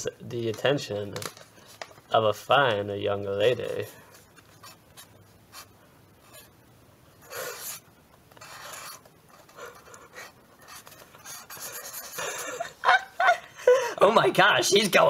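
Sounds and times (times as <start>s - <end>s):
marker drawing on paper: 4.4s - 6.5s, 7.2s - 12.6s.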